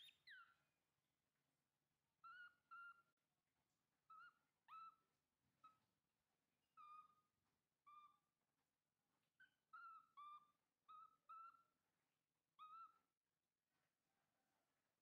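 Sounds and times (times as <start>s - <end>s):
baby monkey coo calls: 0.0s - 0.6s, 2.2s - 3.1s, 4.1s - 5.0s, 6.8s - 7.2s, 9.4s - 11.8s, 12.6s - 13.0s.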